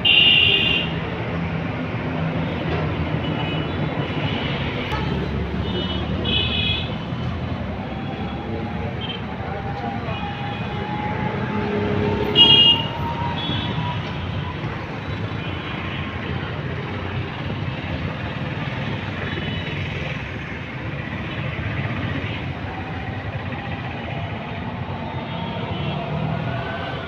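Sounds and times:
road traffic: 0:00.0 - 0:27.0
loud high-pitched horn: 0:11.3 - 0:13.8.

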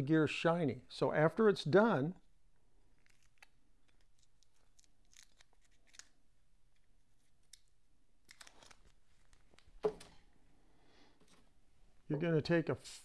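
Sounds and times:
small parts clicking and rustling: 0:02.9 - 0:09.8.

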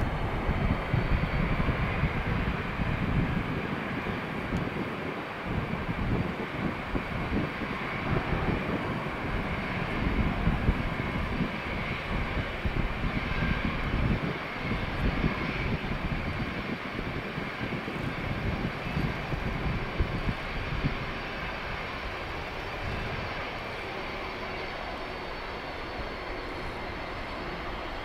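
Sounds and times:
jet engine whine: 0:00.0 - 0:28.0
low rumble of rolling jet: 0:00.0 - 0:28.0.

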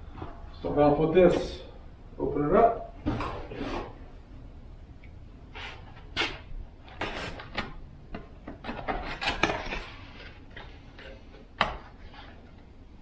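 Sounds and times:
cardboard and packing rustling: 0:05.6 - 0:12.6.

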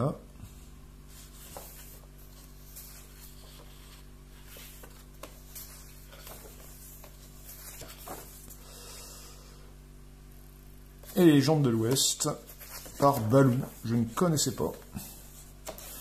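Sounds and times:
low electrical hum: 0:00.0 - 0:16.0
magazine pages rustling: 0:01.1 - 0:08.6, 0:11.0 - 0:16.0.

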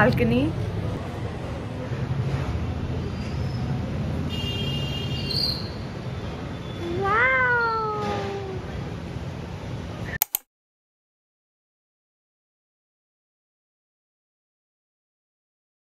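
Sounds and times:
cat meowing: 0:06.8 - 0:08.7.

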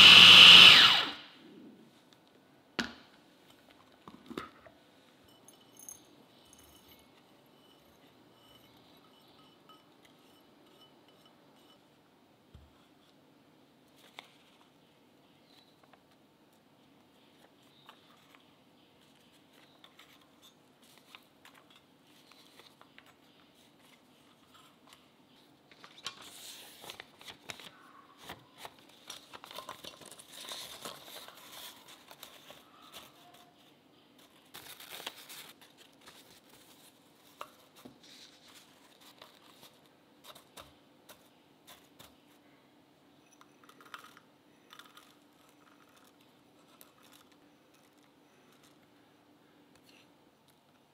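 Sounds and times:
parchment paper crinkling: 0:25.7 - 0:42.2.

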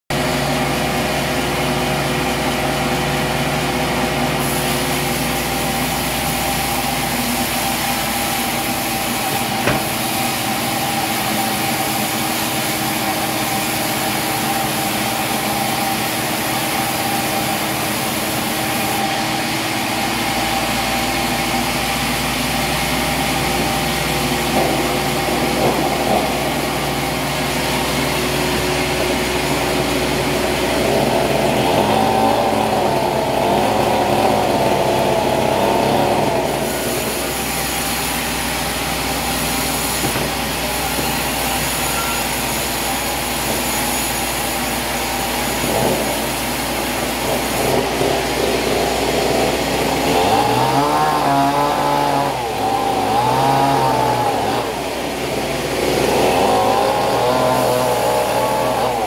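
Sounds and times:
band saw cutting log: 0:04.2 - 0:59.0
sharp knock: 0:09.3 - 0:10.2.

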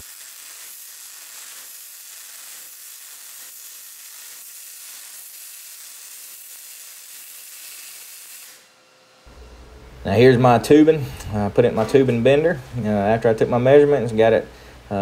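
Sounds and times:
welding arc crackling hiss: 0:00.0 - 0:08.8.

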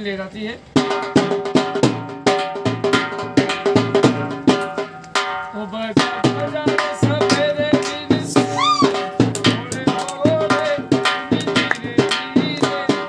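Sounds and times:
steady drum beat: 0:00.7 - 0:13.0
reedy pipe melody: 0:08.3 - 0:09.2.

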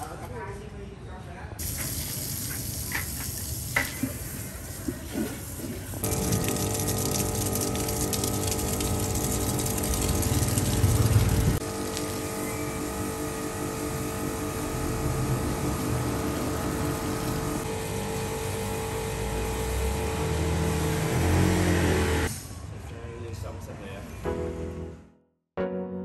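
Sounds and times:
water jet spraying: 0:01.6 - 0:12.9.

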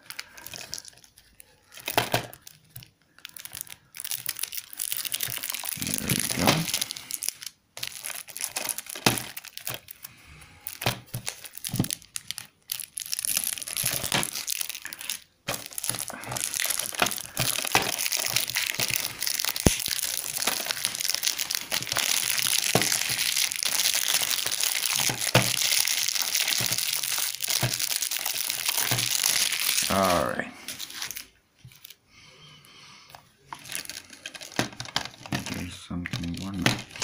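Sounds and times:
plastic shrink-wrap crinkling: 0:00.0 - 0:32.0, 0:33.4 - 0:37.0.

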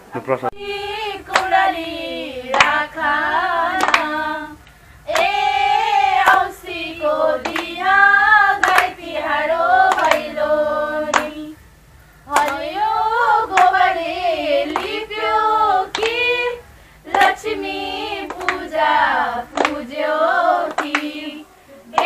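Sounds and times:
women singing in unison: 0:00.6 - 0:22.0
hand claps: 0:01.3 - 0:01.8, 0:02.5 - 0:09.0, 0:09.7 - 0:10.4, 0:11.1 - 0:11.6, 0:12.3 - 0:12.8, 0:13.5 - 0:13.9, 0:14.7 - 0:15.2, 0:15.8 - 0:17.5, 0:18.2 - 0:20.0, 0:20.6 - 0:22.0.

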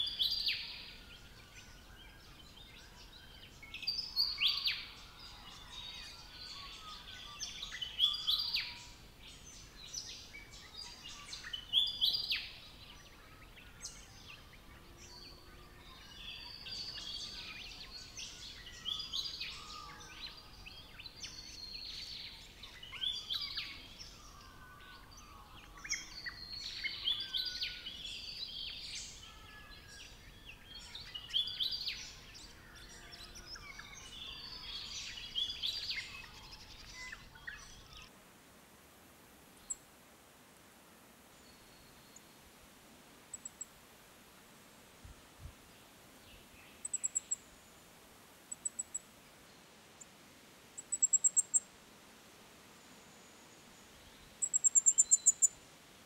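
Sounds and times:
wild birds calling and singing: 0:00.0 - 0:38.1.

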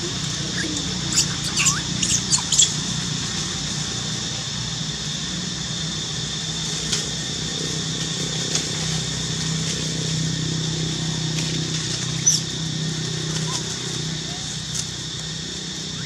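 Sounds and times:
low mechanical hum: 0:00.0 - 0:16.0
short high squeak: 0:01.1 - 0:02.7.

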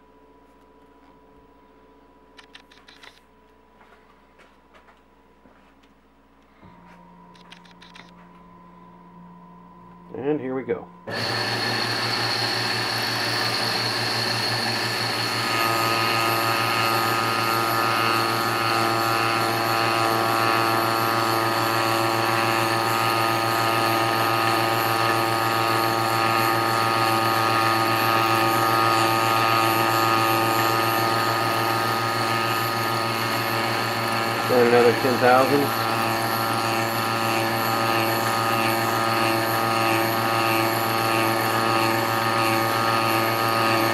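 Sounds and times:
lathe mechanical whine: 0:06.7 - 0:43.9.

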